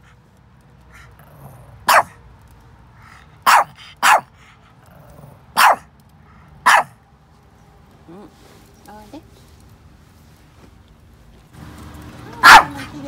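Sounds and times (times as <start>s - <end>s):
small dog barking: 1.7s - 2.2s, 3.4s - 4.3s, 5.5s - 5.9s, 6.6s - 7.0s, 12.4s - 12.9s.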